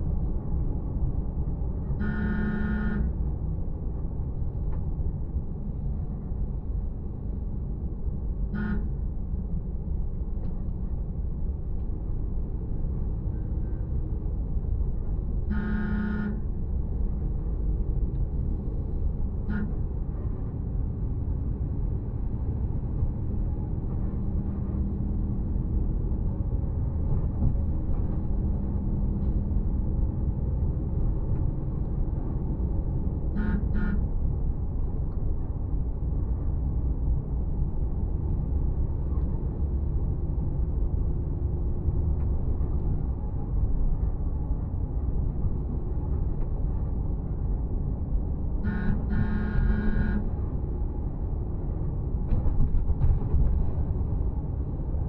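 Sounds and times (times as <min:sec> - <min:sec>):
vehicle road and engine rumble: 0:00.0 - 0:55.0
vehicle horns tooting: 0:02.0 - 0:03.1, 0:08.6 - 0:08.9, 0:15.5 - 0:16.4, 0:19.5 - 0:19.8, 0:33.4 - 0:34.0, 0:48.6 - 0:50.3.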